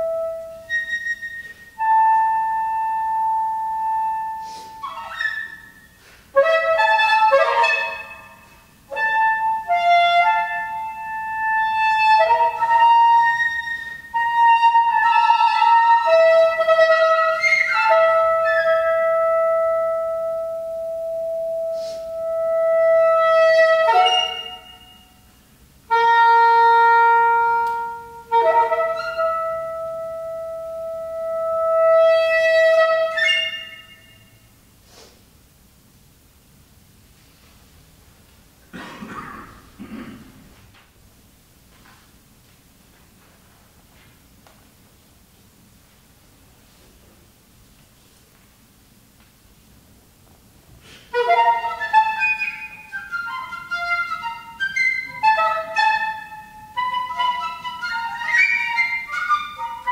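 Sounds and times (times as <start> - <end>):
soprano saxophone: 0.0 - 25.2, 25.9 - 34.0, 50.8 - 59.9
piccolo: 6.4 - 25.3, 51.1 - 59.9.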